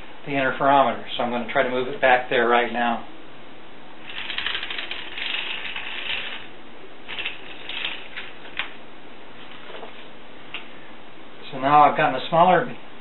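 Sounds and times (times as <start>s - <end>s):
metal stand rattling and clicking: 7.1s - 8.7s.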